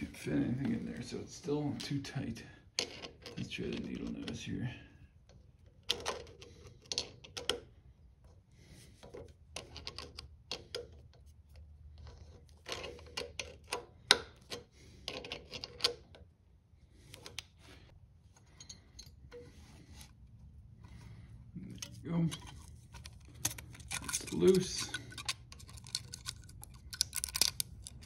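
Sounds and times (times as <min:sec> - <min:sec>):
metal tools clicking and scraping: 0:18.3 - 0:20.1, 0:21.7 - 0:28.0.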